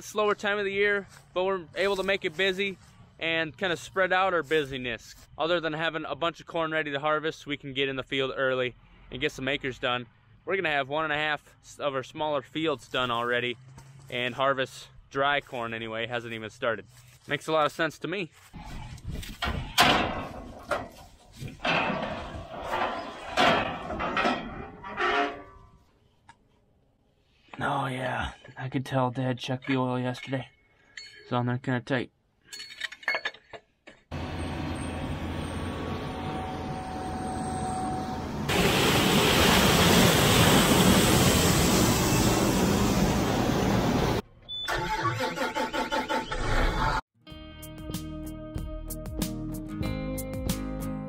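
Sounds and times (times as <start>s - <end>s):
metal ladder clanking and scraping: 19.2s - 25.9s
combine harvester running: 19.8s - 25.0s, 34.1s - 44.2s.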